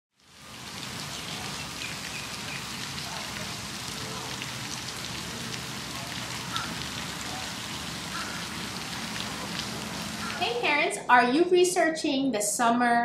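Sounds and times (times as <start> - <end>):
fountain water splashing: 0.1 - 10.9.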